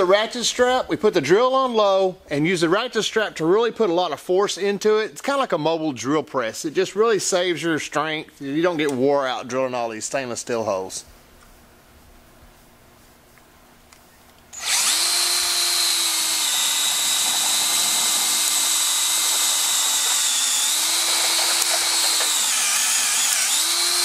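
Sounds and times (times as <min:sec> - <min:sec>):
cordless drill boring into steel: 0:14.6 - 0:24.0.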